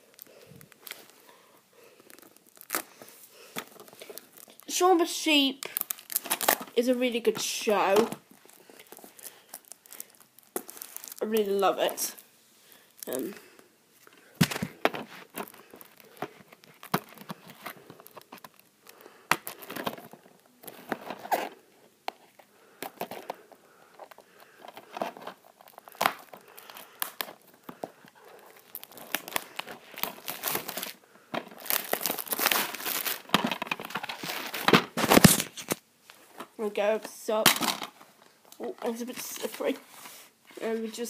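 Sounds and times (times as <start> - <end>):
plastic wrapping tearing: 0.0 - 4.7, 5.6 - 6.9, 7.8 - 12.3, 14.4 - 21.6, 24.0 - 35.8.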